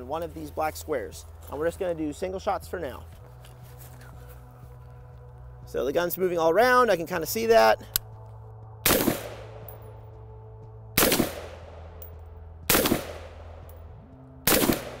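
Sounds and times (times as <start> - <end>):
rifle shots with echo: 8.8 - 9.8, 11.0 - 12.1, 12.7 - 13.8, 14.5 - 15.0.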